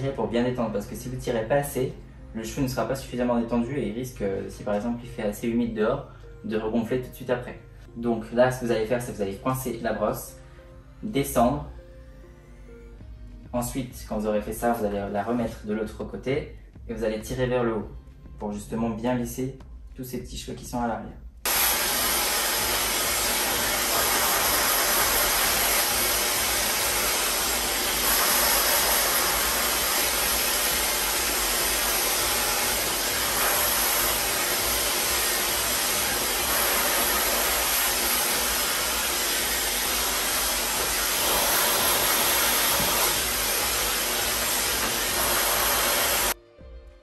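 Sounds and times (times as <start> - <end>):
hair dryer running: 21.5 - 46.4.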